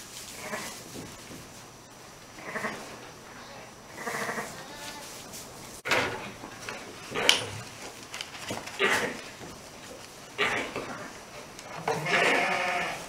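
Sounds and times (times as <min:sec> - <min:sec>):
sheep bleating: 0:03.4 - 0:05.1, 0:11.8 - 0:13.0.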